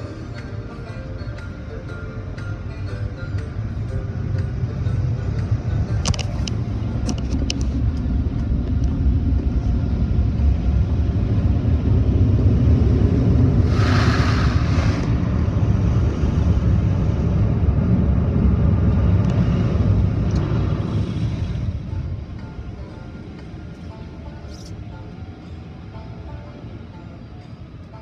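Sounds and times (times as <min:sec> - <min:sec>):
car wash machinery rumbling: 0:00.0 - 0:28.0
hissing gush of spray: 0:13.6 - 0:15.1.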